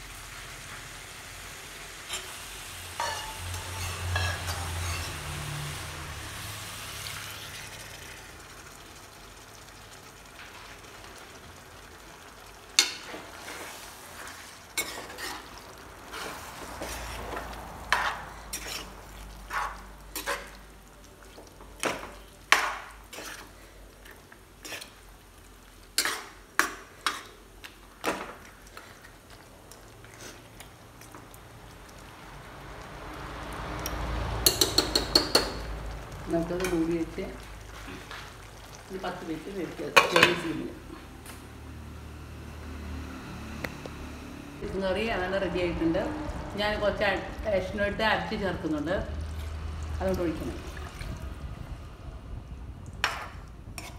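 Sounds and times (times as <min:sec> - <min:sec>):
curry sizzling in a pan: 0:00.0 - 0:51.9, 0:52.7 - 0:53.9
spoon knocking and scraping pan: 0:03.0 - 0:05.2, 0:16.1 - 0:18.9, 0:19.5 - 0:20.6, 0:21.8 - 0:23.5, 0:26.0 - 0:27.3, 0:34.4 - 0:35.7, 0:40.0 - 0:40.5, 0:53.0 - 0:53.9.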